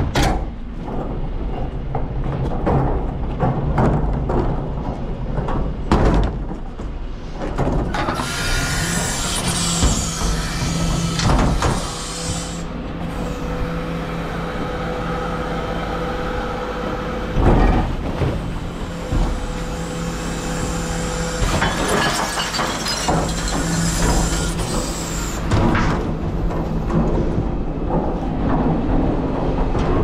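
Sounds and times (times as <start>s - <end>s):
bin lift whine: 5.7s - 30.0s.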